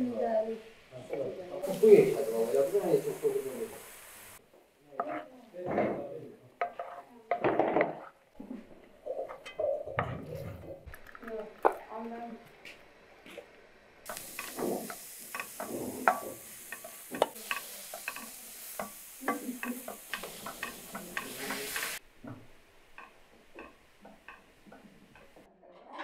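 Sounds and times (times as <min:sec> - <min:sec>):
meat and onions sizzling in pan: 0:00.0 - 0:04.4, 0:13.8 - 0:25.5.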